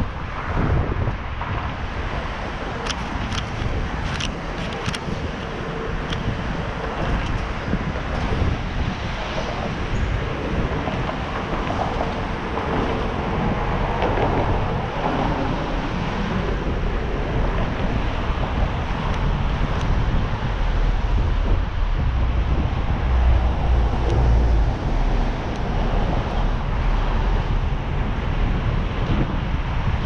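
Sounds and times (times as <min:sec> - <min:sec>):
passing street traffic: 0:00.0 - 0:30.0
wind buffeting microphone: 0:00.0 - 0:30.0.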